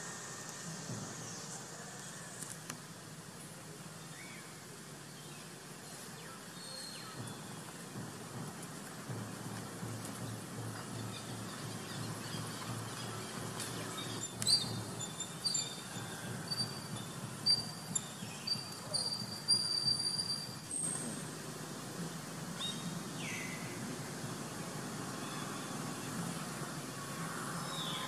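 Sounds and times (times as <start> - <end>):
birds chirping: 4.0 - 20.5, 22.5 - 28.0.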